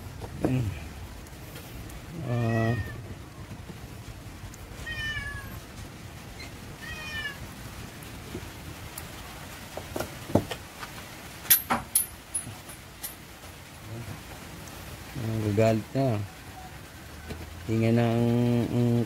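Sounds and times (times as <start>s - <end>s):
cat meowing: 2.2s - 3.1s, 4.8s - 5.6s, 6.8s - 7.5s
sharp clicks and clinks: 11.5s - 13.3s.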